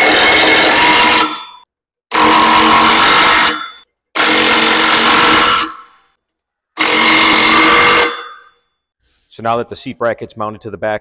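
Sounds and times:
impact wrench hammering bolts: 0.0 - 6.0, 6.8 - 8.5.

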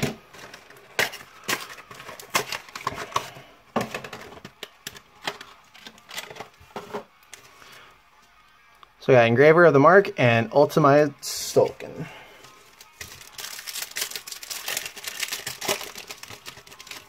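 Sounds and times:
plastic wrap crinkling: 12.6 - 17.0.

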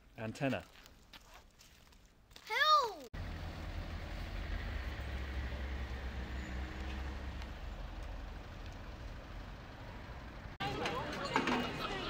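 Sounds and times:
low rumble of traffic: 3.2 - 12.0.

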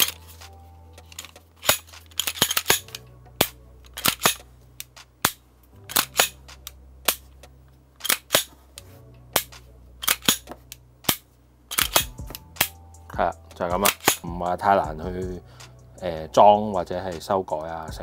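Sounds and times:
pistol slide and trigger clicks: 1.1 - 7.3, 8.0 - 8.6, 9.3 - 12.8, 13.8 - 14.2.

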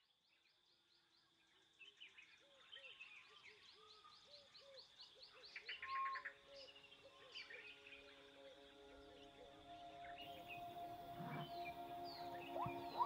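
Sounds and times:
high insect drone: 5.8 - 13.0
bird trill: 10.1 - 13.0
birds calling: 10.1 - 13.0.

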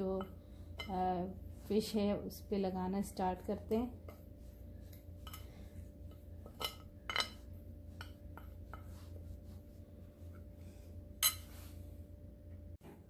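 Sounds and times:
metal spoon scraping ceramic plate: 11.2 - 11.5.

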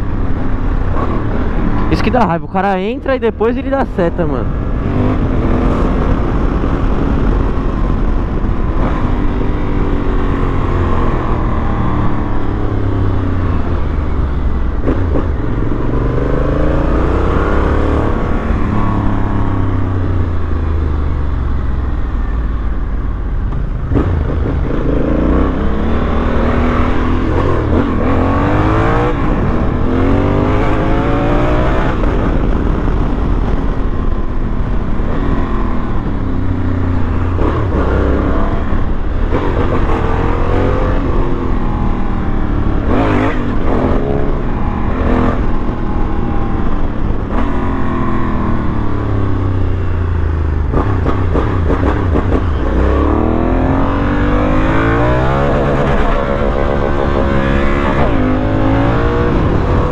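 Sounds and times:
wind and road noise: 0.0 - 59.9
motorcycle engine accelerating: 3.6 - 59.9.

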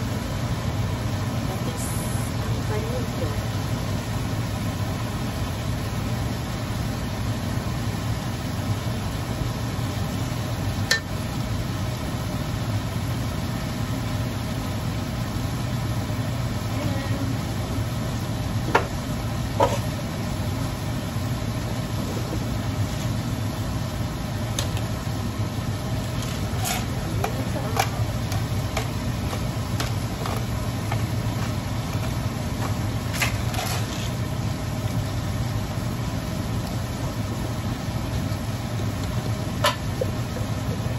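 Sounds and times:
low mechanical hum: 0.0 - 40.9
metal spoon scraping wok: 26.1 - 29.4, 33.2 - 34.2.

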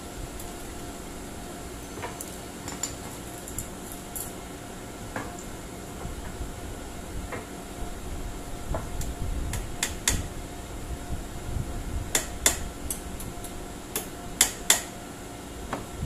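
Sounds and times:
steady low rumble: 5.5 - 14.4.

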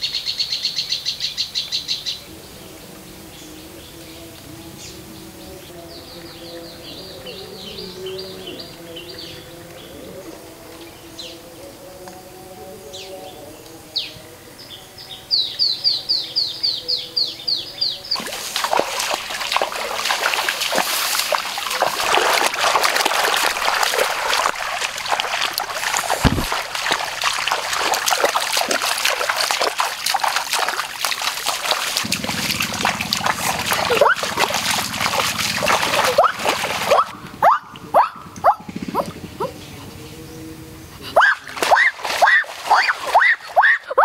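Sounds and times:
birds chirping: 0.0 - 44.0
person wading through muddy water: 17.9 - 44.0.

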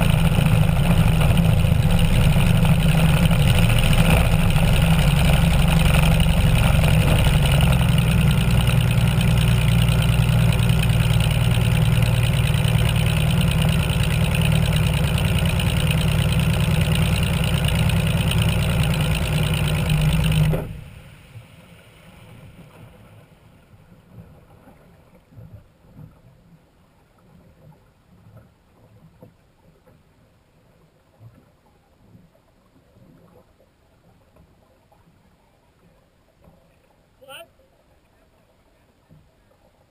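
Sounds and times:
boat engine running: 0.0 - 21.6
faint water sounds: 0.0 - 39.9.

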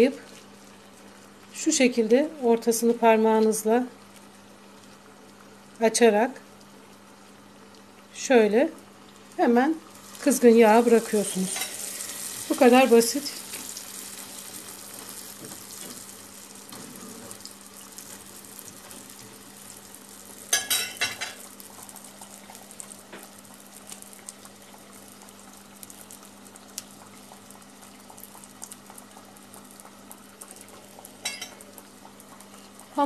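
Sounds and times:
dough frying in hot oil: 0.0 - 33.0.

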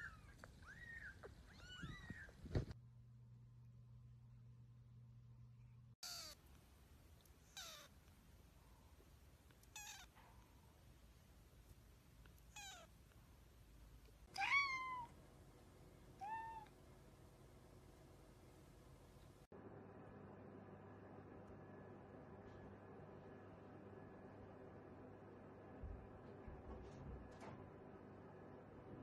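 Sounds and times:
adult cat meowing: 6.0 - 6.4, 7.5 - 7.9, 9.7 - 10.1, 14.3 - 15.1
kitten mewing: 6.0 - 6.4, 7.5 - 7.9, 9.6 - 10.1, 12.5 - 12.9.

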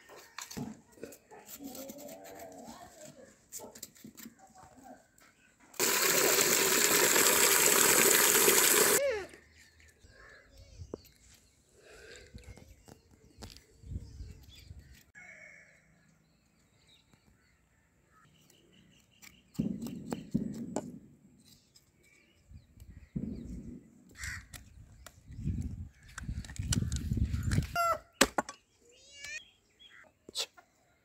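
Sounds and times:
crows cawing: 15.2 - 15.8, 24.2 - 24.5.

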